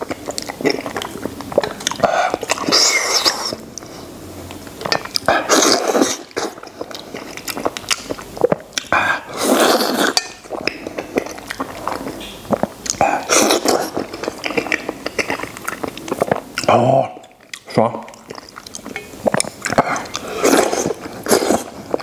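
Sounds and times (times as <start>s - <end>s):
sucking slurps: 0.0s - 4.2s, 5.2s - 22.0s
wet chewing and lip smacks: 6.3s - 9.0s, 10.5s - 22.0s.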